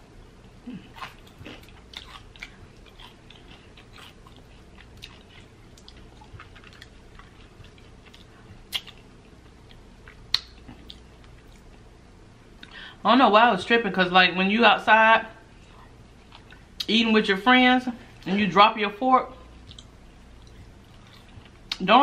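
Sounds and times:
person chewing pastry: 0:00.4 - 0:11.9, 0:15.6 - 0:16.9, 0:19.6 - 0:21.8.

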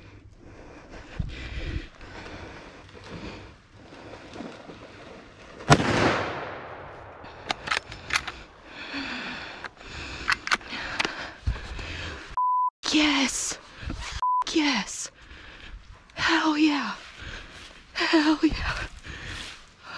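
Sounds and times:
gunshot with echo: 0:05.7 - 0:07.2
sharp clicks and handling noise: 0:07.4 - 0:08.5, 0:09.6 - 0:11.3.

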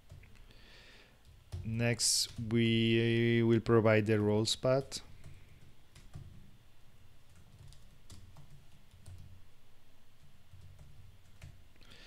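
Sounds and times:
low steady hum: 0:00.0 - 0:12.0
typing on computer keyboard: 0:05.1 - 0:06.4, 0:07.3 - 0:09.4, 0:10.2 - 0:11.6.

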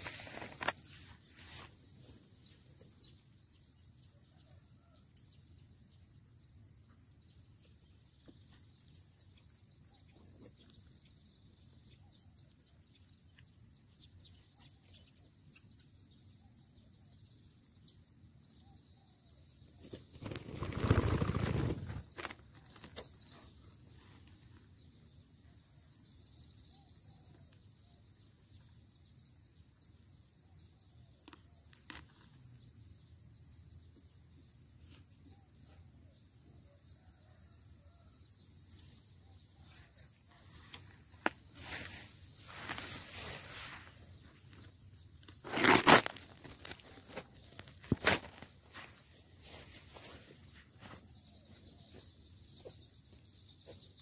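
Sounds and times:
bird wings flapping: 0:19.8 - 0:23.0.

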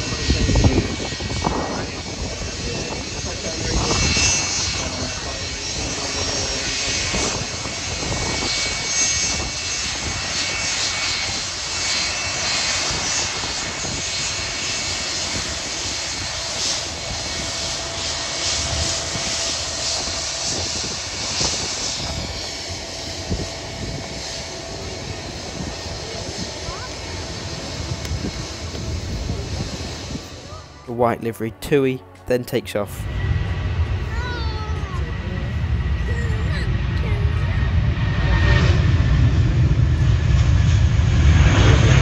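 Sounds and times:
jet engine whine: 0:00.0 - 0:42.0
low engine tone: 0:15.4 - 0:42.0.

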